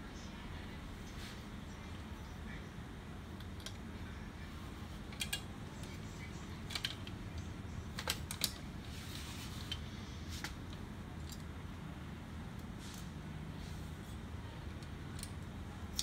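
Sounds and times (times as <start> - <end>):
steady low hum: 0.0 - 16.0
printer parts clicking and knocking: 6.6 - 8.7.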